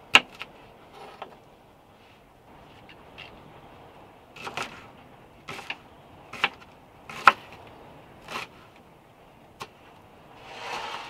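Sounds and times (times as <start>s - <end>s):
knife cutting on wooden board: 10.4s - 11.0s.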